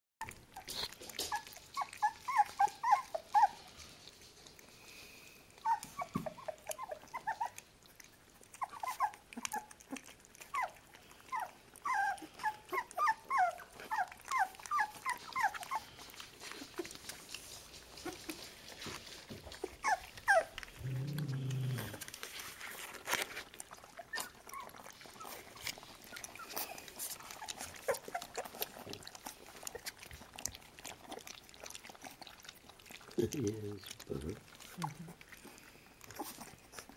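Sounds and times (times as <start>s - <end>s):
puppies squeaking and whimpering: 0.2s - 3.8s, 5.6s - 36.9s
puppies lapping milk: 0.2s - 36.9s
puppy grunt: 8.5s - 17.1s, 19.6s - 22.3s, 23.9s - 36.9s.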